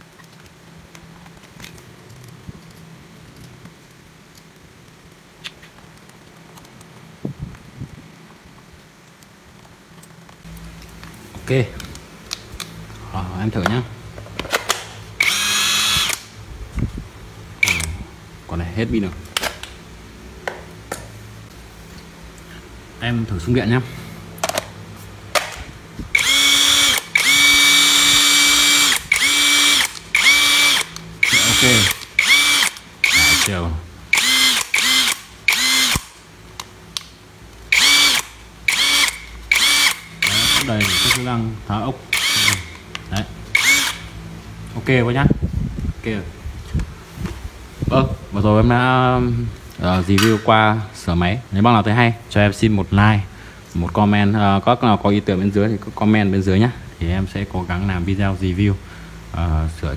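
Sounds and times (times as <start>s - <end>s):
impact wrench motor whine: 15.2s - 16.3s, 17.6s - 18.0s, 26.1s - 36.2s, 37.7s - 41.3s, 42.1s - 42.8s, 43.5s - 44.2s.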